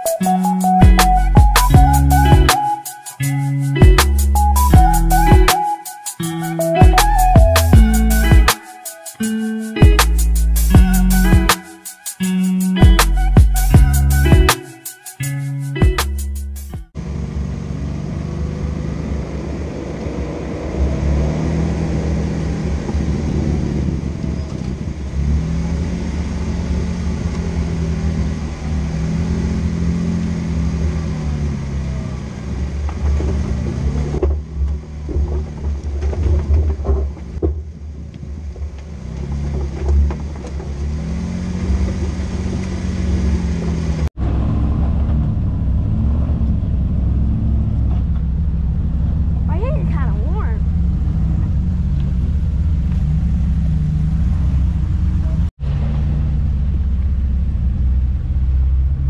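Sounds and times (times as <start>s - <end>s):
off-road vehicle engine revving: 17.0s - 59.0s
knocks and rattles: 32.9s - 41.0s.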